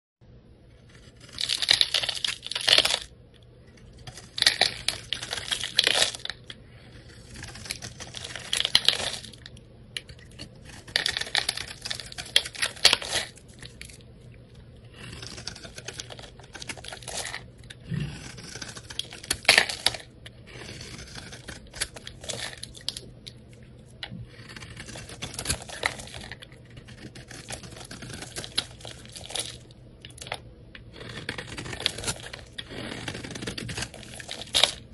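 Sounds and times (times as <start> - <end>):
knife blade scraping soap: 14.9 - 22.6, 30.9 - 34.6.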